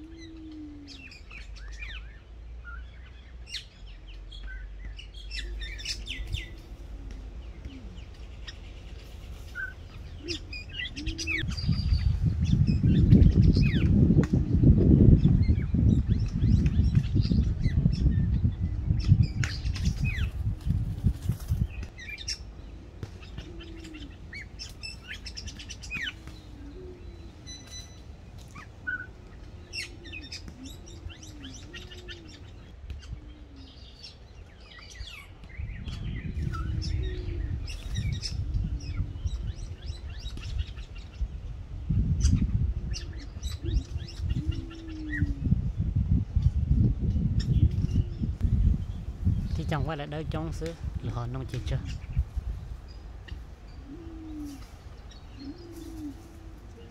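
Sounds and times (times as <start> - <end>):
pigeons cooing: 0.0 - 3.8, 4.6 - 50.5, 51.2 - 56.9
small birds chirping: 0.0 - 56.9
low rumbling noise: 35.6 - 53.9.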